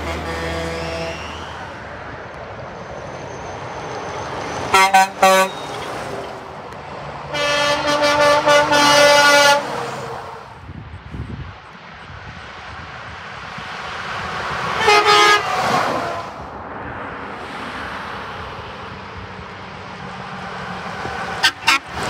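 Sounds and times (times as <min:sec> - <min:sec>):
truck air horn: 0:00.0 - 0:01.5, 0:04.7 - 0:05.9, 0:07.3 - 0:10.5, 0:14.7 - 0:16.4, 0:21.4 - 0:22.0
passing truck engine: 0:00.0 - 0:22.0.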